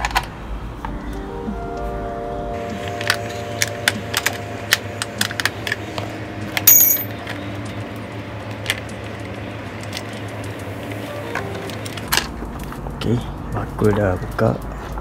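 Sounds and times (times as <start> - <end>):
sharp metal clink: 6.6 - 7.2.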